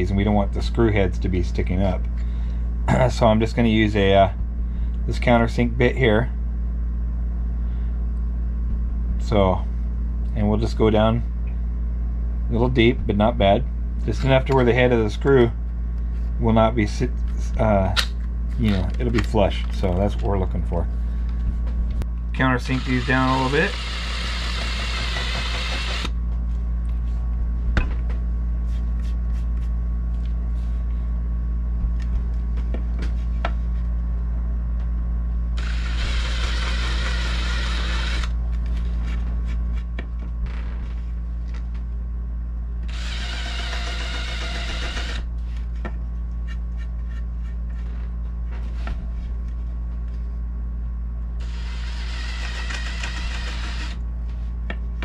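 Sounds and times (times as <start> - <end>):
steady low hum: 0.0 - 55.0
cordless drill cutting wood: 22.7 - 26.1, 35.6 - 38.3, 42.9 - 45.2, 51.4 - 54.0.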